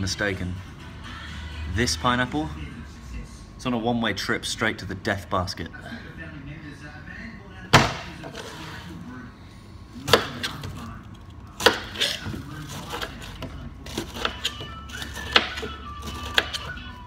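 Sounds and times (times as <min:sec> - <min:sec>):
knife chopping on plastic board: 0:07.8 - 0:08.6, 0:10.1 - 0:10.8, 0:11.6 - 0:16.8.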